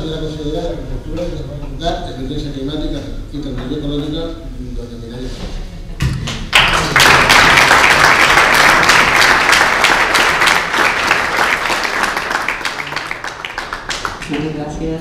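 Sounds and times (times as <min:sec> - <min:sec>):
audience applause: 0:06.5 - 0:14.5.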